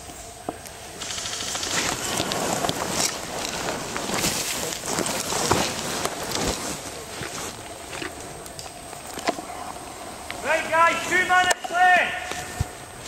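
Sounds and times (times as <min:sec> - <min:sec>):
clothing and undergrowth rustling: 0:00.0 - 0:13.0
twigs crackling and snapping: 0:00.5 - 0:10.4.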